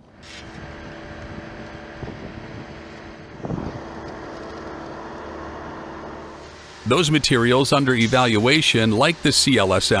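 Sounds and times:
wind noise: 0.0 - 5.8
engine-like hum: 0.0 - 10.0.

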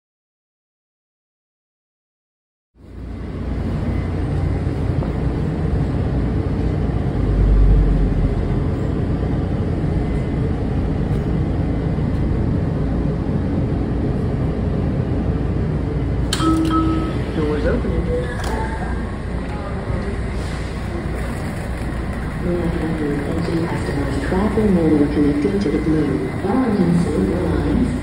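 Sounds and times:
train wheels rumbling: 3.0 - 28.0
brief higher tone: 16.4 - 19.0.

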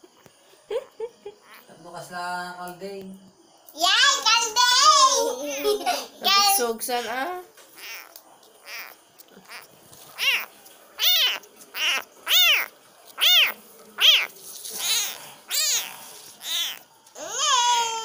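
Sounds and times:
kitten meowing: 7.8 - 17.6.

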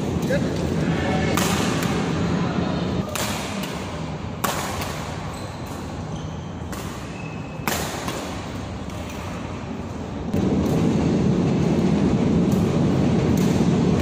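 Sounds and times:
racket hitting shuttlecock: 1.3 - 2.2, 3.0 - 11.0, 11.7 - 14.0
faint shoe squeaks: 5.1 - 7.7.

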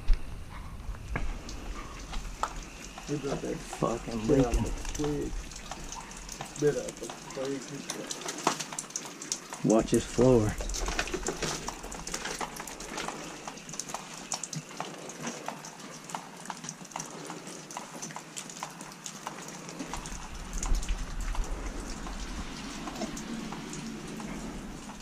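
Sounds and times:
low rumble: 0.0 - 6.4, 19.9 - 25.0.

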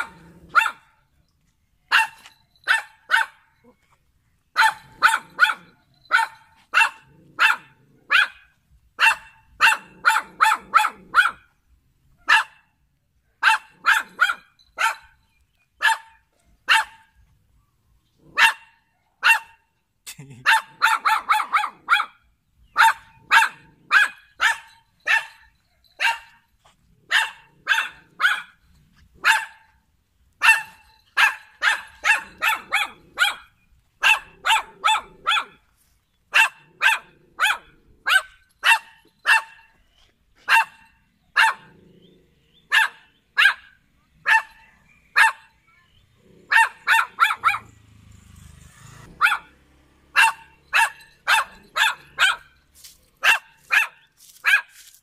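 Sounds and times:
small dog yapping: 0.0 - 0.8, 4.6 - 8.4, 9.0 - 11.4, 20.4 - 22.2, 22.8 - 26.4, 29.2 - 29.6, 30.4 - 35.6, 36.3 - 39.7, 40.5 - 40.8, 41.4 - 41.7, 42.7 - 45.5, 46.4 - 47.7, 49.0 - 52.5, 53.2 - 54.8.

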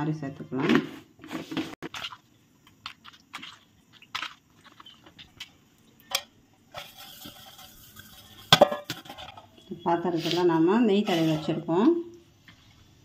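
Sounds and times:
spoon stirring thick batter: 1.3 - 6.0, 9.6 - 12.8
spoon scraping bowl: 6.7 - 11.7.

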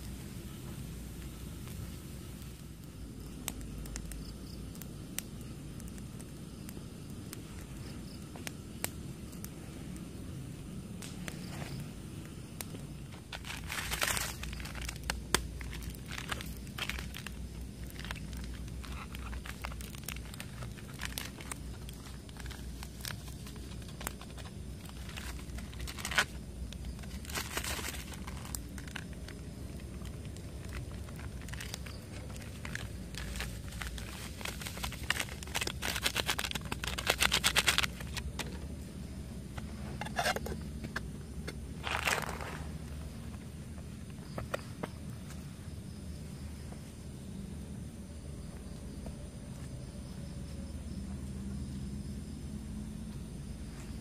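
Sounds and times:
campfire crackling: 0.0 - 54.0
crinkling handling noise: 11.0 - 45.5.

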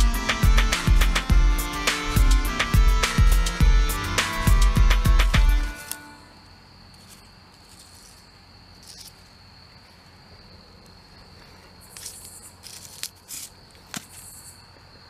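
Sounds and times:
crickets trilling: 5.5 - 15.0
stick rustling through grass: 5.6 - 6.1, 6.9 - 10.1, 11.3 - 14.6.

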